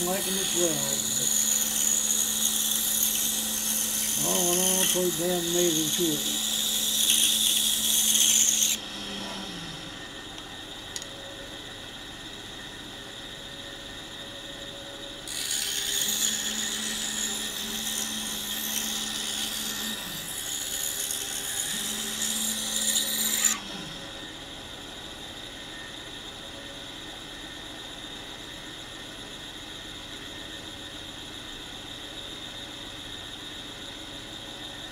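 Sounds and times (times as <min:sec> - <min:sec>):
saw blade rasping through wood: 0:00.0 - 0:08.8, 0:15.3 - 0:23.6
scroll saw humming: 0:00.0 - 0:12.7, 0:15.2 - 0:26.4.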